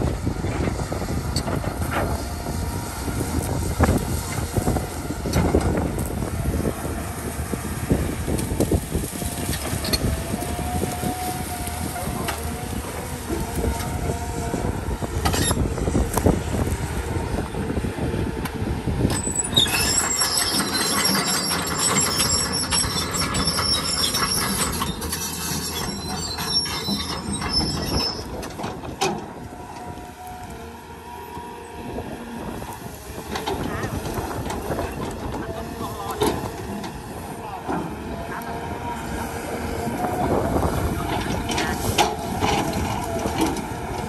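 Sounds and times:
excavator diesel engine under load: 0.0 - 44.0
high metallic squealing: 19.1 - 28.5.

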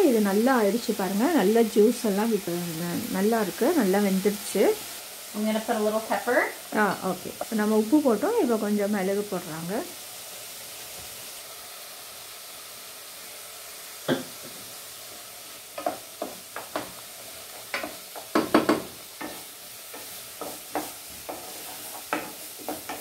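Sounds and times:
vegetables sizzling in oil: 0.0 - 23.0
wooden spoon knocking and scraping pot: 15.8 - 23.0.

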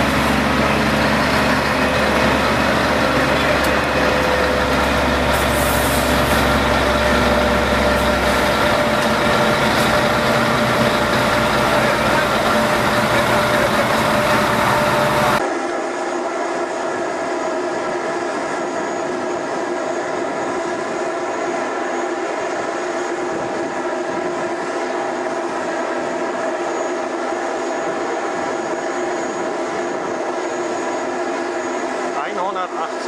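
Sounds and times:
diesel truck engine running: 0.0 - 15.4.

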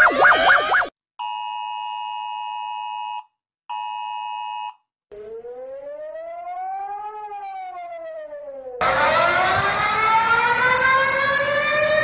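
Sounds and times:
civil defence siren rising and falling: 5.1 - 12.0.

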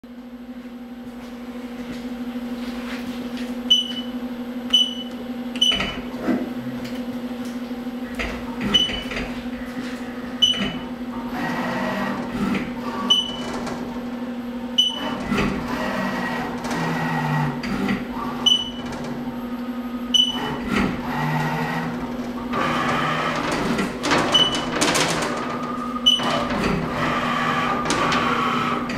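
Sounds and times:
machine hum: 0.1 - 28.9
short high beeps with clicks: 3.7 - 4.1
machine axes whirring: 14.8 - 28.9.

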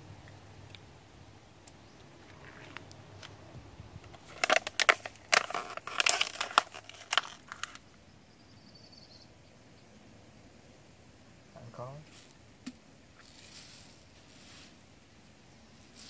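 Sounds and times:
plastic bottle crackling: 4.0 - 7.8.

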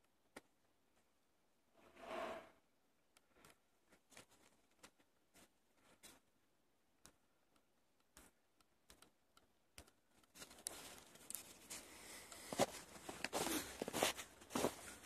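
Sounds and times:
faint clicks: 7.0 - 12.6
footsteps crunching through snow: 10.4 - 15.0.

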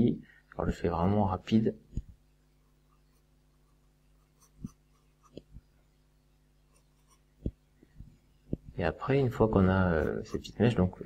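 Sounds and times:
pencil scratching on paper: 2.6 - 5.5, 6.7 - 7.3, 10.0 - 10.6.

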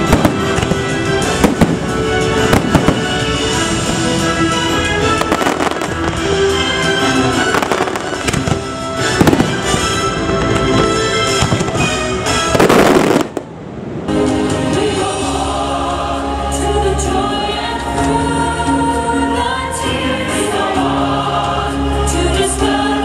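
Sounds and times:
loud crackling firework blast: 0.0 - 3.5, 5.2 - 6.3, 7.4 - 10.1, 12.5 - 13.5
fireworks bursting: 0.0 - 4.3, 5.0 - 13.6
orchestral music with choir: 0.0 - 23.0.

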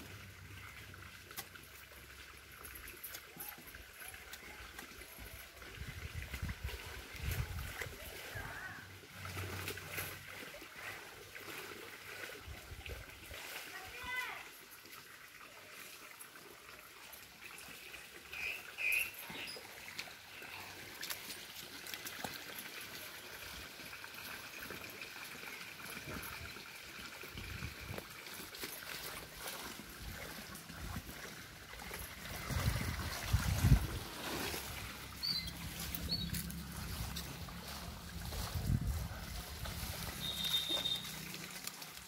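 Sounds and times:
water trickling into a puddle: 0.0 - 42.0
short high chirps: 40.2 - 41.3.

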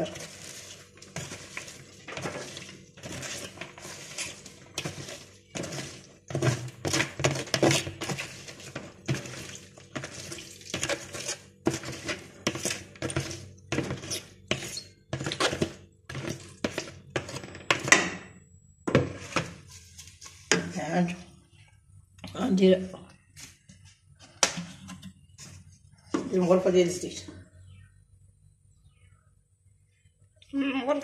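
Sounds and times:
wooden spoon knocking and scraping: 0.0 - 20.9, 23.2 - 26.6.

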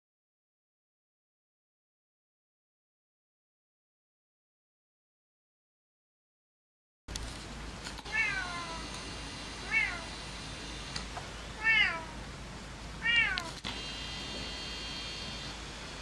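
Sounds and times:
cat meowing: 8.1 - 8.9, 9.6 - 10.1, 11.6 - 12.2, 13.0 - 13.6.

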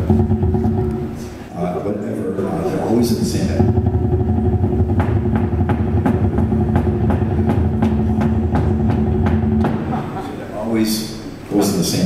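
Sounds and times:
electric bass guitar notes: 0.0 - 1.5, 2.4 - 10.4.

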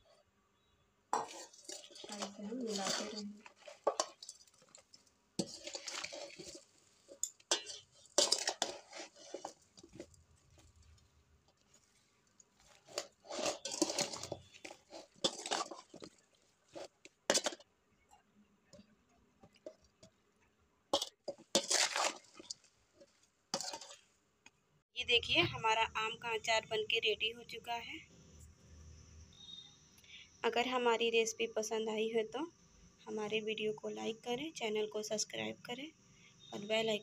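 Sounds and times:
crunching and rustling of mango pieces: 1.2 - 17.7, 21.0 - 24.1.

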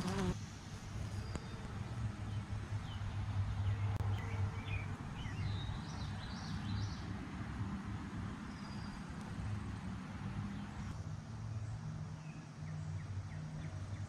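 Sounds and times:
bumblebee buzzing: 0.0 - 0.4.

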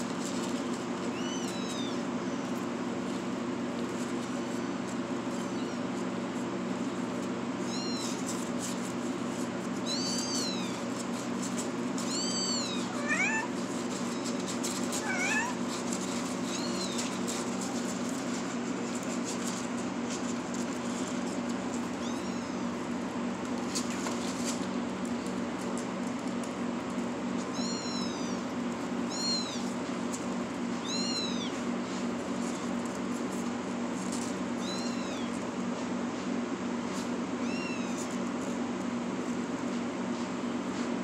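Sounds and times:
kittens mewing: 0.8 - 3.5, 4.2 - 19.0, 20.8 - 23.4, 27.4 - 32.4, 34.4 - 35.5, 37.3 - 38.3.

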